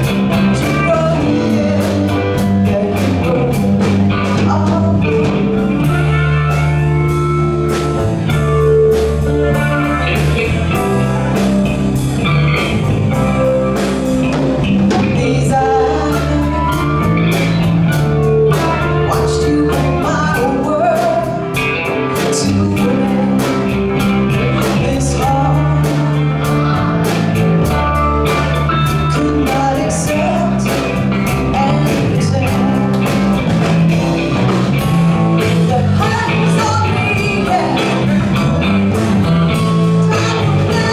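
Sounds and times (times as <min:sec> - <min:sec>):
person singing: 0:00.0 - 0:11.9, 0:12.6 - 0:40.9
guitar: 0:00.0 - 0:40.9
steady drum beat: 0:00.0 - 0:40.9.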